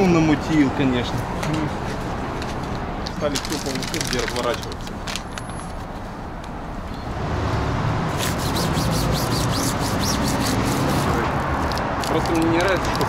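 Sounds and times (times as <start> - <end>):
low traffic rumble: 0.0 - 13.0
paper crinkling and rubbing: 1.6 - 6.1, 8.2 - 13.0.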